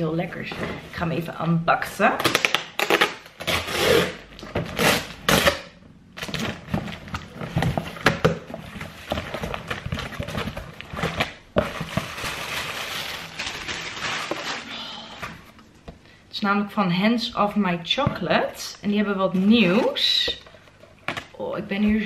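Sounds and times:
cardboard tearing and rustling: 6.2 - 14.7.

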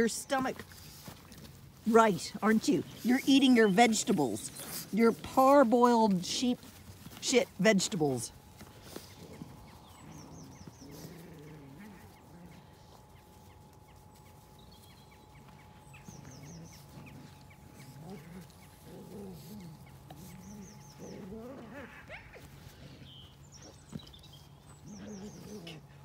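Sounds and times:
small birds chirping: 0.0 - 26.0
low wavering animal calls: 8.7 - 23.9, 24.6 - 26.0.

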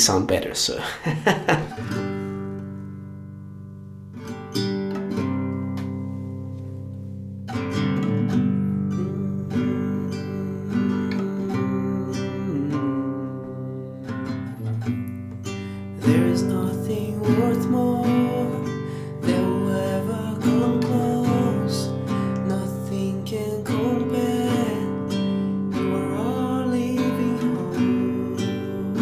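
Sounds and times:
classical guitar strumming: 1.5 - 29.0
man singing: 8.6 - 14.9, 16.0 - 29.0.

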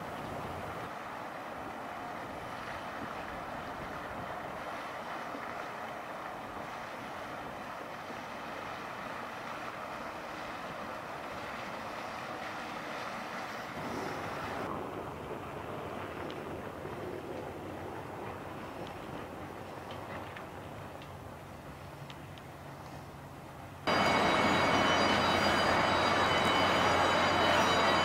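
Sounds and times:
open-water wave noise: 0.0 - 28.0
outboard motors running: 23.9 - 28.0.

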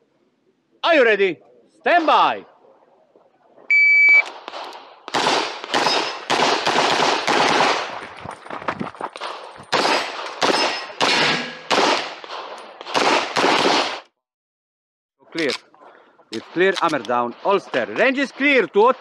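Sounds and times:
shot timer beep: 3.7 - 4.3
pistol shots with echo: 4.4 - 8.0, 9.7 - 14.0.

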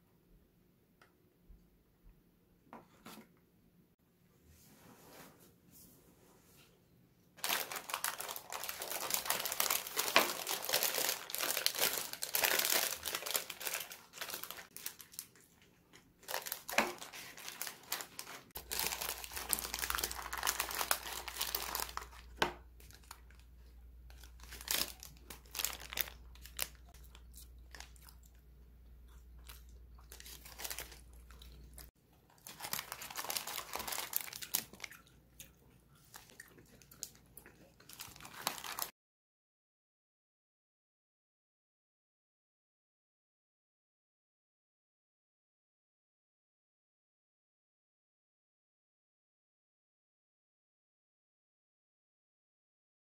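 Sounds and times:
paper wrapper crinkling: 7.4 - 28.3, 29.4 - 35.0, 37.8 - 38.9
biting and chewing food: 7.4 - 38.9.

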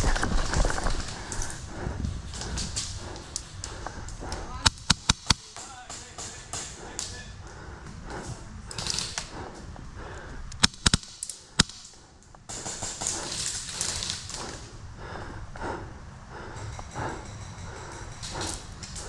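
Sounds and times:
airsoft gun shots: 10.6 - 11.8.

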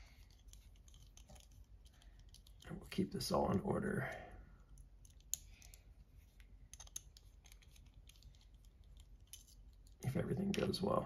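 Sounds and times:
small parts clicking and tapping: 0.0 - 2.8, 4.6 - 10.0.

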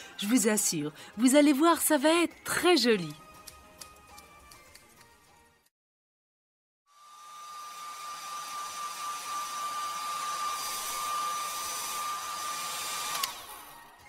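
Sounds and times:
hair dryer blowing: 6.9 - 14.0
hair dryer switch click: 13.1 - 13.4.

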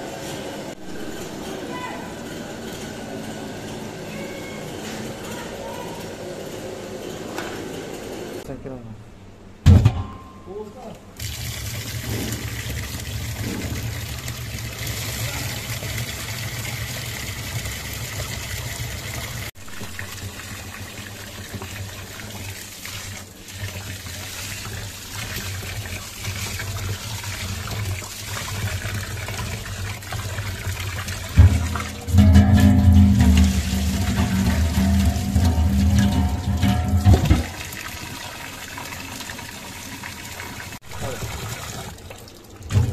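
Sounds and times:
water pouring into metal pot: 11.2 - 42.9.

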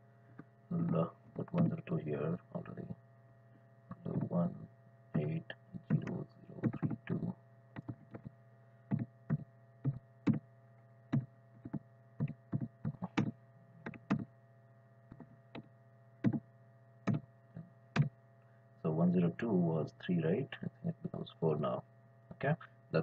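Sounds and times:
low electrical hum: 0.0 - 23.0
keyboard keystrokes: 8.9 - 10.4, 11.6 - 14.2, 15.1 - 16.4.

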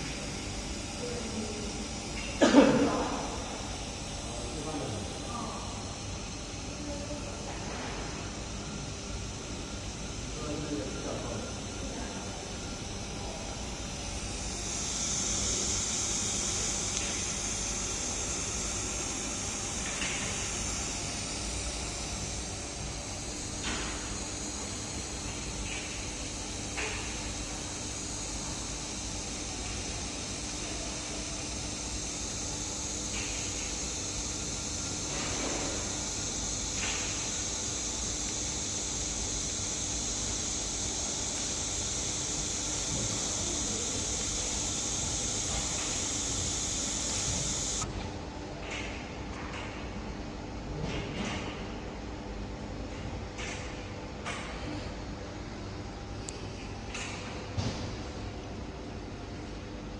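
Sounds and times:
laser welding machine hiss: 0.0 - 48.0
faint hum: 0.0 - 48.3.

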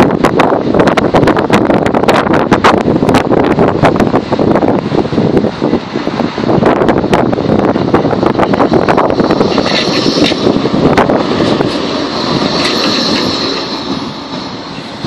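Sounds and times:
tram wheels and motors rumbling: 0.0 - 15.0
wind buffeting microphone: 0.0 - 15.0
high whine: 6.5 - 15.0.

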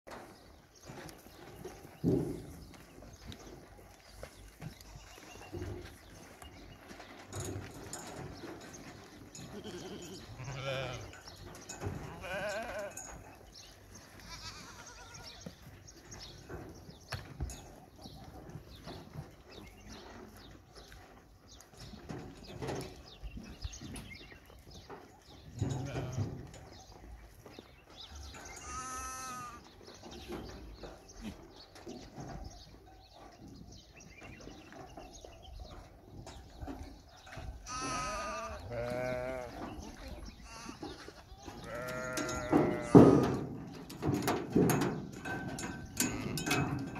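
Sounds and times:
sheep bleating: 9.5 - 11.1, 12.1 - 13.0, 14.2 - 15.4, 28.6 - 29.6, 37.7 - 39.6, 41.6 - 43.2.

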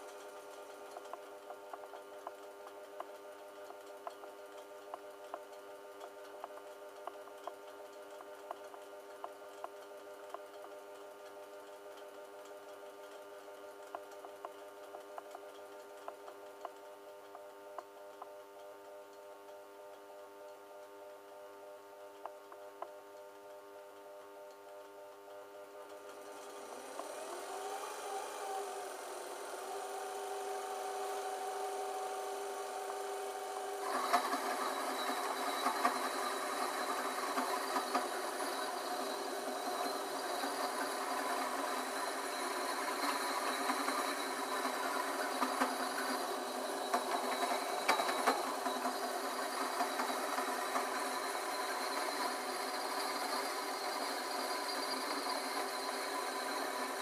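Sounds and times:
steady hum: 0.0 - 57.0
file scraping spinning pipe: 26.3 - 57.0.

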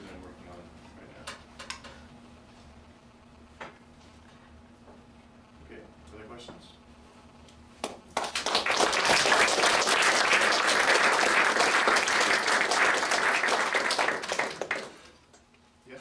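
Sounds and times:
audience applauding: 7.8 - 15.3.

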